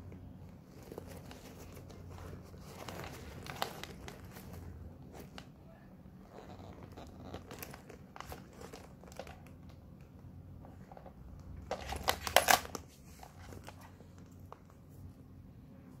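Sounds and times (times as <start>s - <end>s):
leather handbag rustling: 0.4s - 5.4s, 6.2s - 9.4s.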